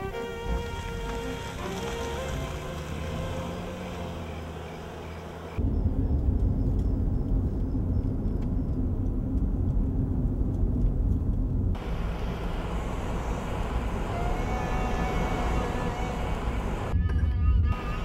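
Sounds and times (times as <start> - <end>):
hissy road noise: 0.0 - 7.4, 11.8 - 17.0, 17.7 - 18.0
car engine and road rumble: 0.0 - 18.0.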